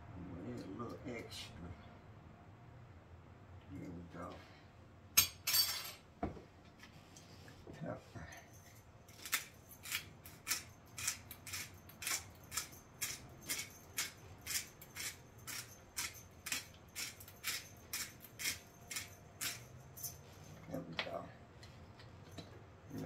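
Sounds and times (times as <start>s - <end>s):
pepper grinder grinding: 8.7s - 20.3s.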